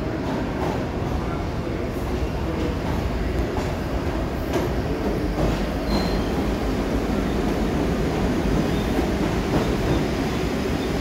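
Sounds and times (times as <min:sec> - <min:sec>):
subway train cars rolling past: 0:00.0 - 0:11.0
high train squeal: 0:05.5 - 0:07.6, 0:08.5 - 0:11.0.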